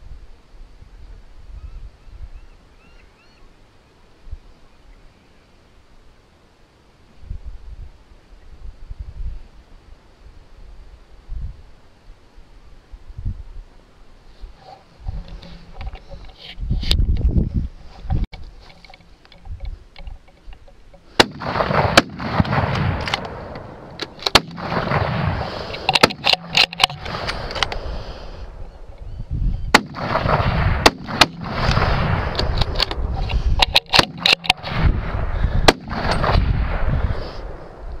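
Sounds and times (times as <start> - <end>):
gunshots: 21.1 - 27.7, 29.7 - 33.0, 33.7 - 37.8.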